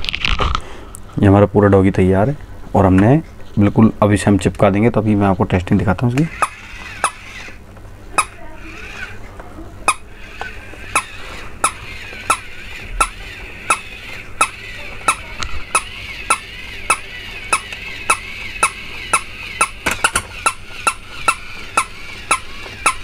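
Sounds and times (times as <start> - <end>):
sharp mechanical clicking: 6.1 - 7.6, 9.9 - 23.0
toy motor whirring with high whine: 6.2 - 7.6, 8.2 - 23.0.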